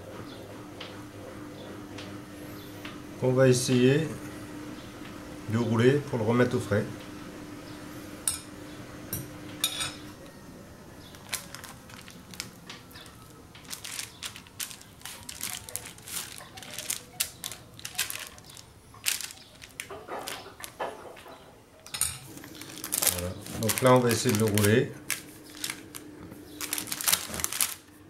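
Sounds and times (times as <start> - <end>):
parchment paper crinkling: 11.1 - 21.3, 22.2 - 28.0.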